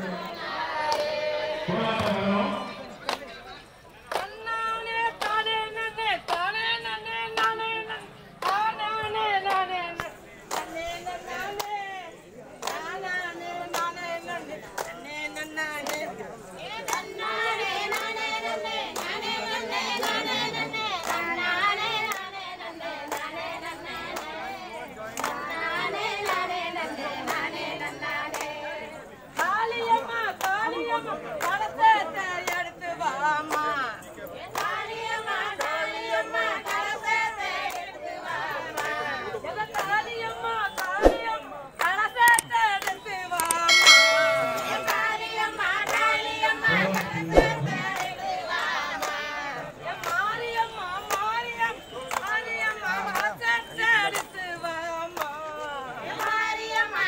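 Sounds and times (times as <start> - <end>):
women singing together: 0.0 - 2.8, 4.1 - 57.0
hand clapping: 0.8 - 1.2, 3.0 - 3.3, 4.0 - 4.4, 5.2 - 5.4, 6.2 - 6.5, 7.3 - 7.7, 8.4 - 8.7, 9.4 - 11.8, 12.6 - 16.2, 16.8 - 17.1, 17.9 - 18.3, 21.0 - 21.4, 25.2 - 25.5, 26.2 - 26.5, 27.2 - 28.6, 30.3 - 30.6, 31.4 - 31.7, 32.4 - 32.7, 34.5 - 34.8, 40.7 - 46.2, 46.9 - 48.1, 50.0 - 51.4, 52.0 - 54.4, 55.1 - 55.5.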